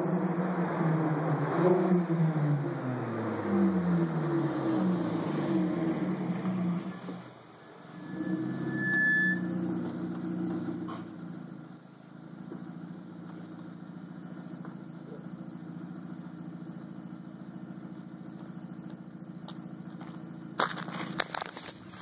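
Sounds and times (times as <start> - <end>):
car exhaust idling at low revs: 5.3 - 22.0
sharp clicks and rattles: 18.3 - 22.0.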